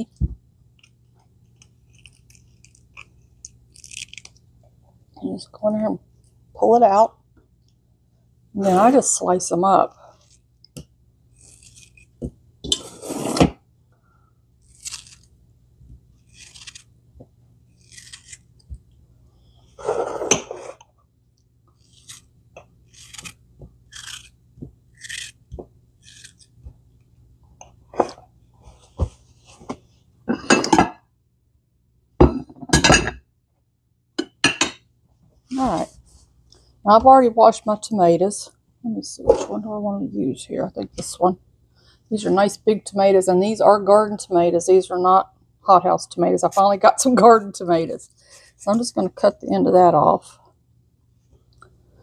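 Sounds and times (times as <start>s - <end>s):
knife slicing fruit: 11.3s - 13.6s, 14.6s - 15.3s, 17.8s - 18.8s, 21.8s - 26.6s.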